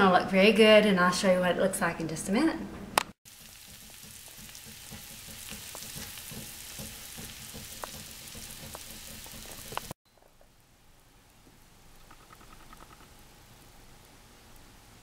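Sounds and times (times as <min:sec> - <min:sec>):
food sizzling with crackling pops: 0:03.2 - 0:10.6, 0:11.2 - 0:15.0.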